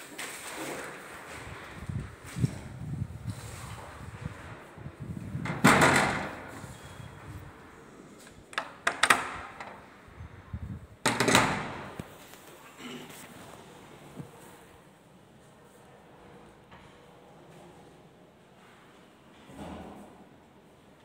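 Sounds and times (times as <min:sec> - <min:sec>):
wooden sliding door sliding on track: 0:00.3 - 0:10.4.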